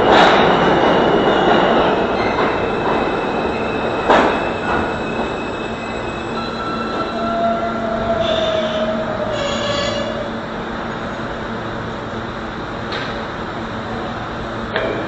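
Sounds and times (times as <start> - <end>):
subway train wheels rumbling: 0.0 - 15.0
high wheel squeal: 2.2 - 10.4.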